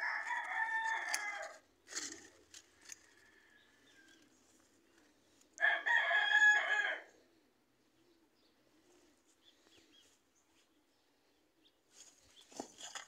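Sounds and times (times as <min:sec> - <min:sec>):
rooster crowing: 0:00.0 - 0:01.6, 0:02.8 - 0:04.2, 0:05.6 - 0:07.1.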